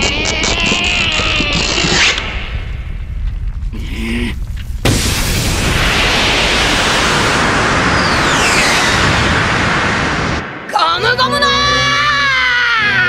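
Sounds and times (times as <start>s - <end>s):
low rumble: 0.8s - 12.0s
cartoon explosion blast: 3.8s - 11.2s
falling whistle: 7.0s - 10.4s.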